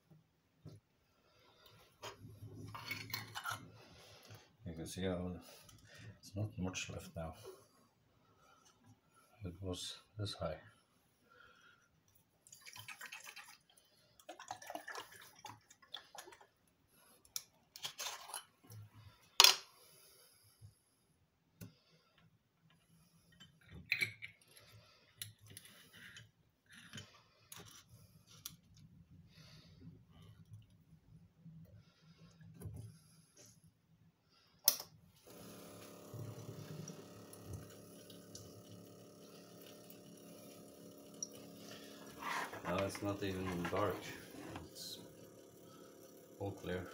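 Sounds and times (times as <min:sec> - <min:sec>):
water sloshing in glass jar: 0:12.4 - 0:16.5
water pouring into sink: 0:12.4 - 0:16.6, 0:35.4 - 0:46.9
water pump humming: 0:35.2 - 0:46.9.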